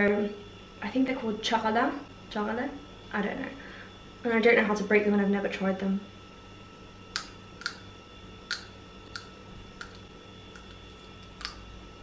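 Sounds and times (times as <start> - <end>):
seed shells cracking between teeth: 7.2 - 7.9, 8.5 - 11.7.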